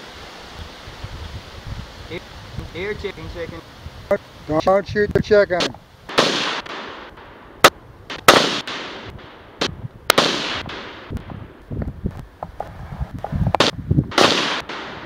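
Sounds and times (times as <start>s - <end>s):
rifle shots echoing: 6.1s - 11.6s, 13.6s - 15.0s.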